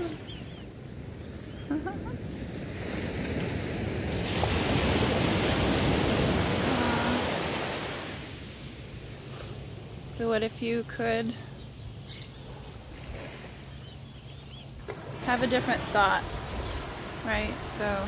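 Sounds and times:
surf washing on beach: 0:02.0 - 0:11.3, 0:14.8 - 0:18.0.

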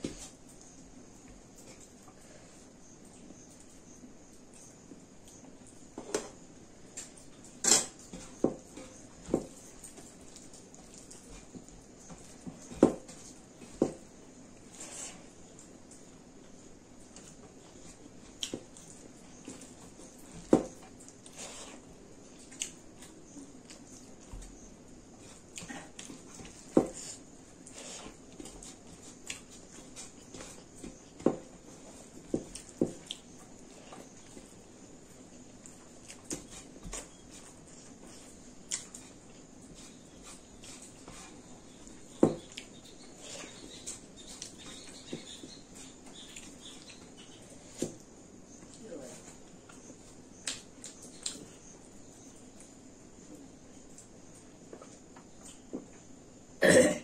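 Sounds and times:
chewing: 0:09.6 - 0:12.4, 0:25.2 - 0:47.3, 0:50.4 - 0:51.6.

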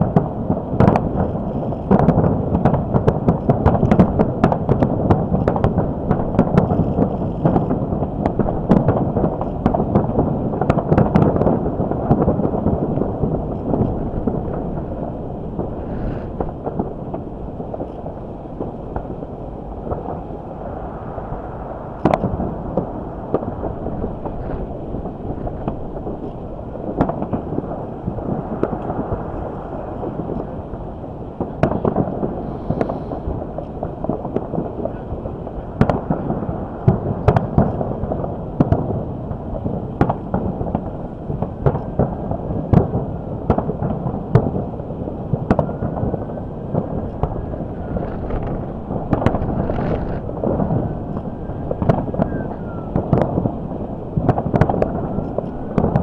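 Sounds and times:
fireworks booming: 0:00.0 - 0:56.0
wind buffeting microphone: 0:00.0 - 0:56.0
low rumble: 0:11.6 - 0:38.1, 0:45.8 - 0:56.0.

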